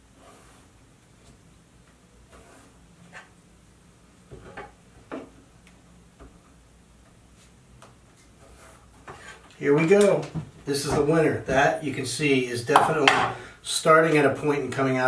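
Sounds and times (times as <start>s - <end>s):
pencil scratching on wood: 2.3s - 3.3s.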